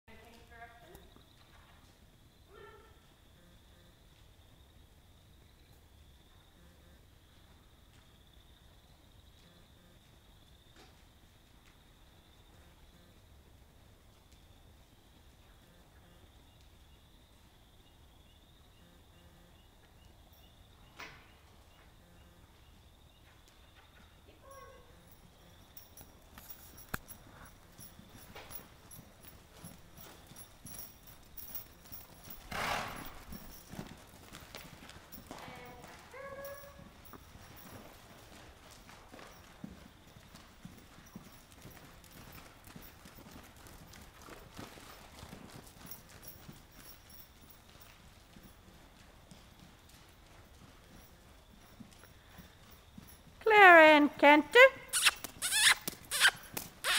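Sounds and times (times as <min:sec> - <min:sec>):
hoofbeats on sand: 0:23.3 - 0:53.4.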